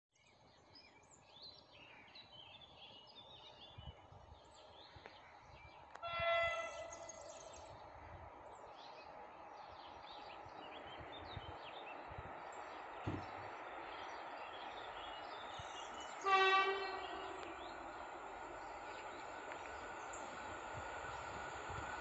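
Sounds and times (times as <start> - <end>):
birds chirping: 0.2 - 22.0
approaching train rumble: 3.4 - 22.0
train horn blast: 6.0 - 7.3, 16.1 - 17.8.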